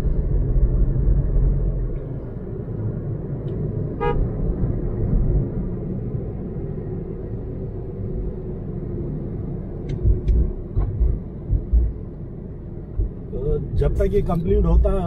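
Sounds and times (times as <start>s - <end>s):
car road and engine rumble: 0.0s - 15.0s.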